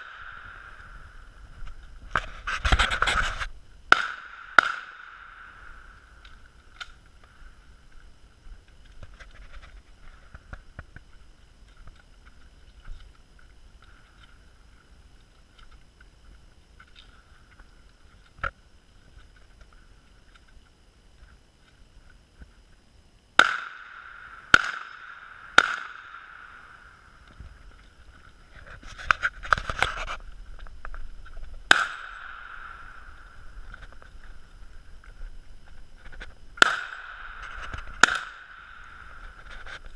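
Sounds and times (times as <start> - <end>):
gunshots with ringing echo: 0.0 - 0.8, 3.9 - 6.0, 23.4 - 27.0, 31.7 - 33.2, 36.6 - 39.2.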